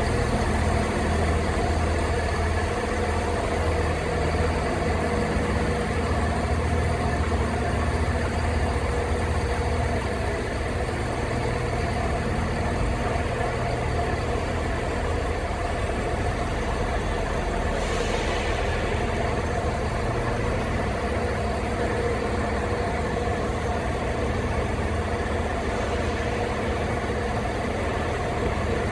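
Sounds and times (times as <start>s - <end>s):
diesel engine idling: 0.0s - 28.9s
brief hiss: 17.8s - 18.9s.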